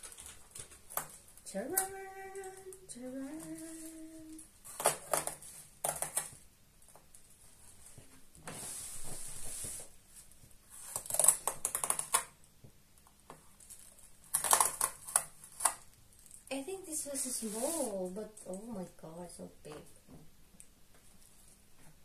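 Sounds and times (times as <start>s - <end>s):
plastic packaging crinkling: 0.0s - 2.8s, 13.4s - 16.5s.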